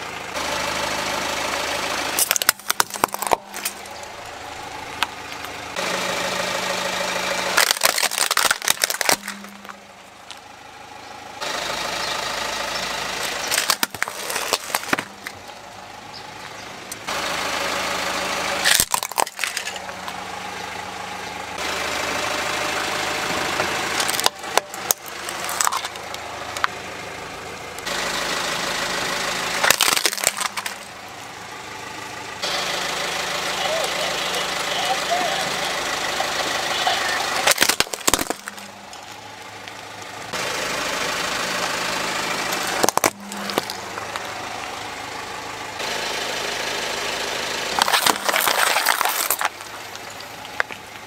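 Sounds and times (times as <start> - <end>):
car engine running slowly: 0.0 - 51.0
plastic toys cracking and snapping: 2.2 - 3.9, 7.5 - 9.8, 13.2 - 15.4, 18.6 - 20.2, 24.0 - 26.7, 29.6 - 30.9, 37.4 - 39.9, 42.5 - 44.3, 47.8 - 50.9.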